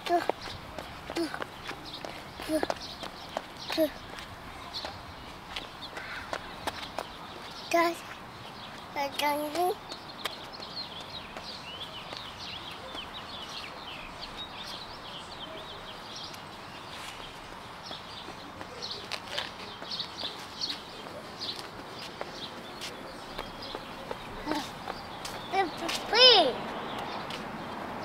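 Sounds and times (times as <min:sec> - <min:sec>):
outdoor background hiss: 0:00.0 - 0:28.0
small birds chirping: 0:00.0 - 0:28.0.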